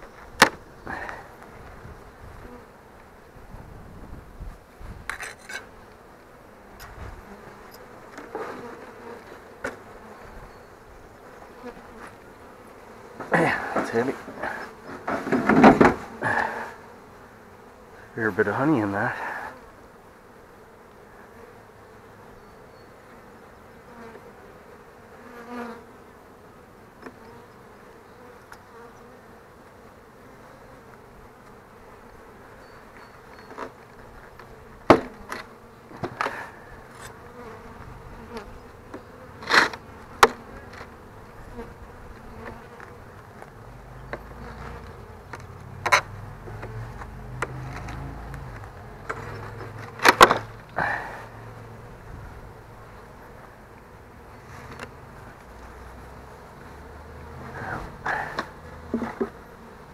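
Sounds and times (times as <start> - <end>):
honeybees buzzing: 0.0 - 59.9
wooden hive boxes knocking: 13.2 - 16.1, 34.8 - 36.4, 58.1 - 59.4.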